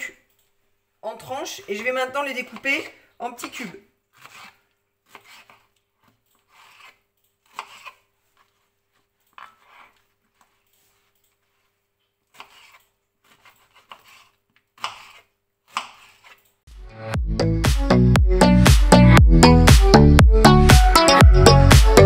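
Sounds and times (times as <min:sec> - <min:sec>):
knife cutting on cutting board: 0:04.1 - 0:11.7, 0:12.3 - 0:16.4
upbeat electronic music: 0:16.7 - 0:22.0.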